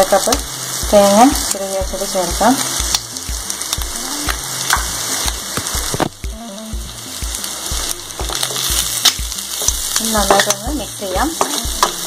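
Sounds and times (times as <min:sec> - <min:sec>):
food sizzling in oil: 0:00.0 - 0:12.0
background music beat: 0:00.1 - 0:12.0
oil popping: 0:02.8 - 0:06.4.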